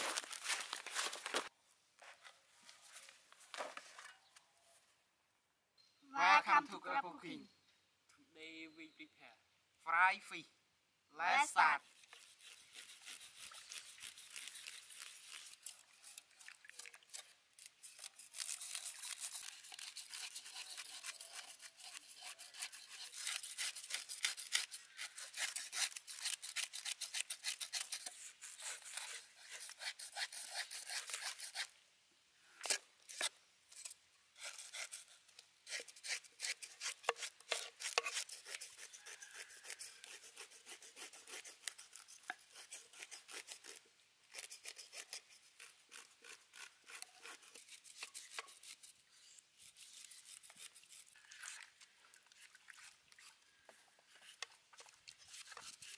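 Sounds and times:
knife scraping fish scales: 11.8s - 31.7s, 32.6s - 55.9s.

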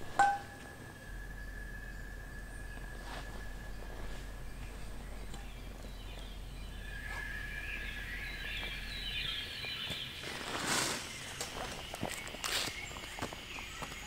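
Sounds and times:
birds calling: 0.0s - 14.0s
rustling: 2.8s - 6.2s, 9.8s - 13.3s.

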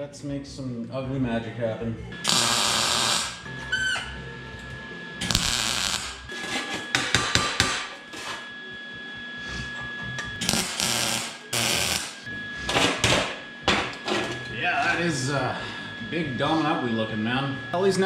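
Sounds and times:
welding arc crackling: 2.2s - 3.5s, 5.2s - 6.4s, 10.4s - 12.3s.

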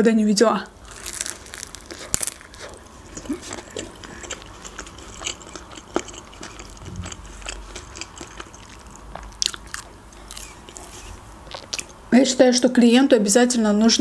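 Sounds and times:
person chewing food: 0.8s - 12.0s.

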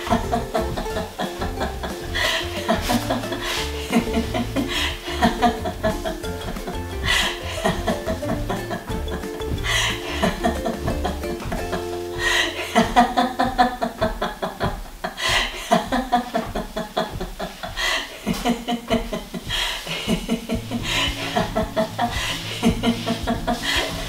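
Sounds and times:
background music low tone: 0.0s - 24.0s
person laughing: 0.0s - 24.0s.

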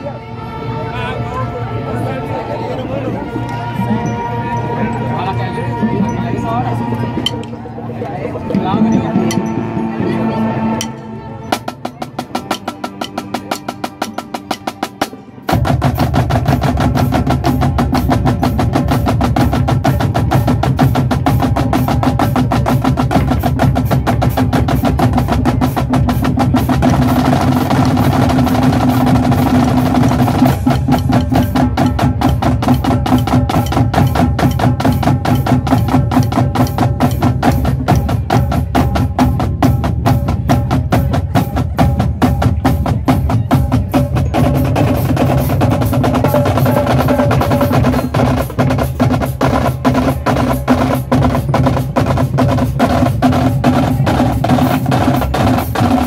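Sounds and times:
marching drumline: 0.8s - 56.0s.

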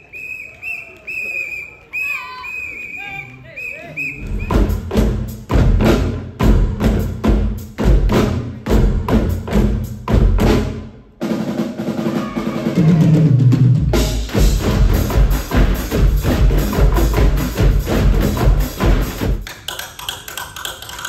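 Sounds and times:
drums and percussive hits: 4.2s - 21.0s.

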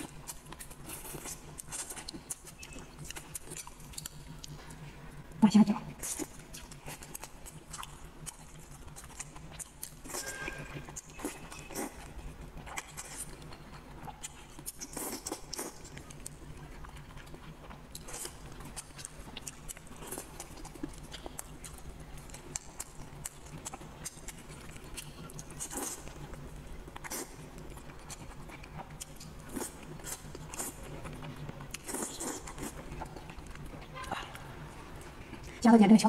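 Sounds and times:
wet chewing: 0.0s - 5.4s, 6.0s - 35.6s
faint low hum: 0.0s - 36.0s
slurping: 28.0s - 35.5s.

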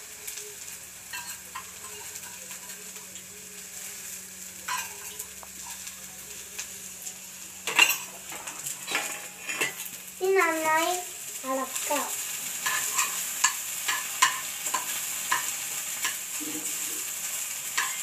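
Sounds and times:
okra sizzling in frying pan: 0.0s - 18.0s
spoon clinking on steel: 4.7s - 5.2s, 12.6s - 16.2s, 17.8s - 18.0s
steel dishes clattering: 4.7s - 5.2s, 7.6s - 9.9s.

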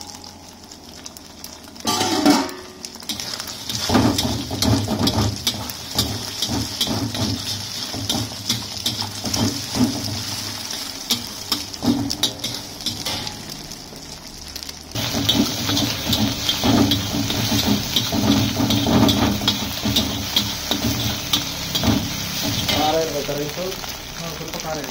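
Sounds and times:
egg sizzling in oil: 0.0s - 24.9s
metal spatula scraping a pan: 1.8s - 13.6s, 15.0s - 23.0s.

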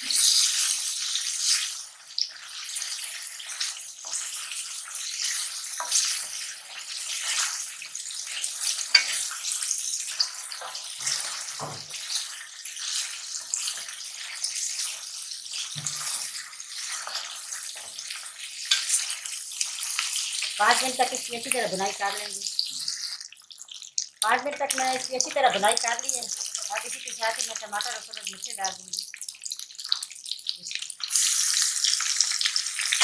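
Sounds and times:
meat sizzling in hot oil: 0.0s - 33.0s.

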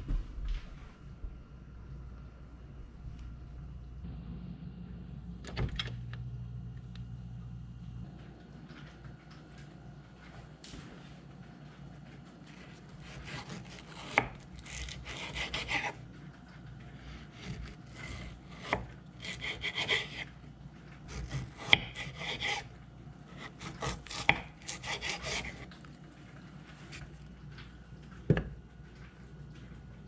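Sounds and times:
knife slicing wrapped butter: 12.5s - 16.0s, 17.0s - 20.3s, 23.3s - 25.9s.

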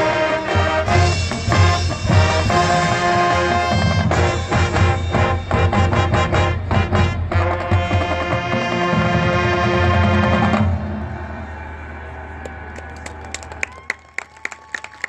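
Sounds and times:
marching band playing: 0.0s - 12.0s.

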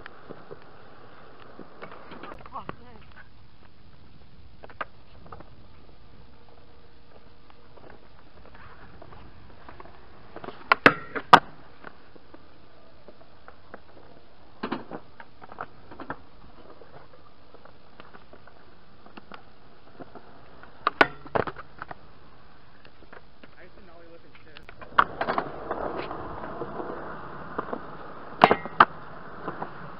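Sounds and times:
skateboard clacking on concrete: 9.6s - 12.4s, 24.3s - 29.9s.

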